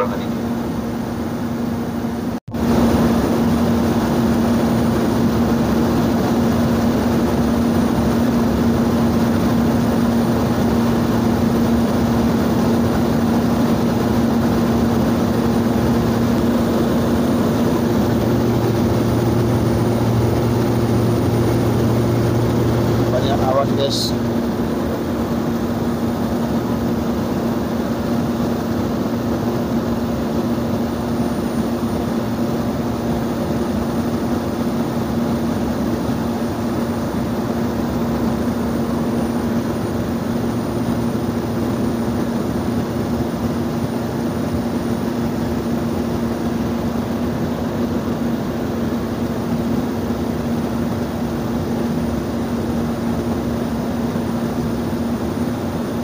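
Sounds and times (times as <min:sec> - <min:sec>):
propeller airplane engine drone: 0:00.0 - 0:56.0
airflow rushing: 0:10.2 - 0:34.1.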